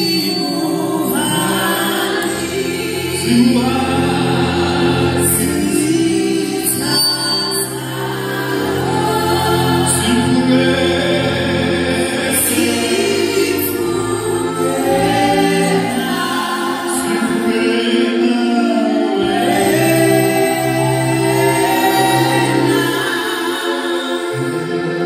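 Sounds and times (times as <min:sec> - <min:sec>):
group singing gospel in harmony: 0:00.0 - 0:25.0.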